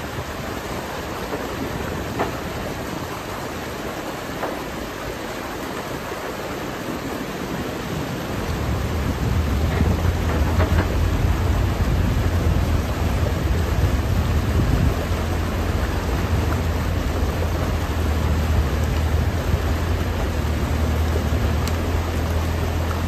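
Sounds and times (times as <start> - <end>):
water rushing: 0.0 - 23.0
excavator diesel engine running: 8.1 - 23.0.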